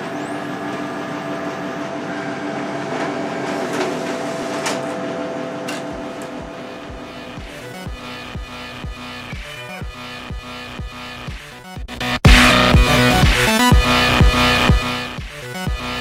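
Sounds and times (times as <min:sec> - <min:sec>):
photocopier humming and whirring: 0:00.0 - 0:07.8
electronic music with kick drum: 0:05.9 - 0:16.0.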